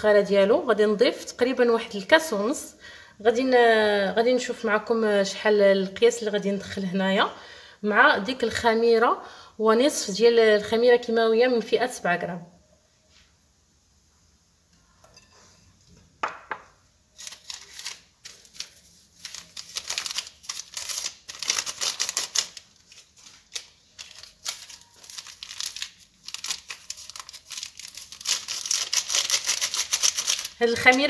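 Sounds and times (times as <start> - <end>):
sachet crackling and rustling: 17.1 - 31.0.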